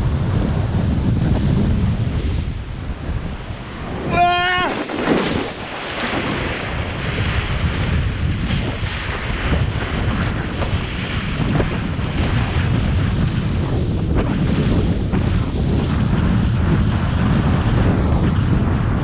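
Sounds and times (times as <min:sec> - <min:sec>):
wind buffeting microphone: 0:00.0 - 0:19.0
water rushing and splashing: 0:01.8 - 0:12.7.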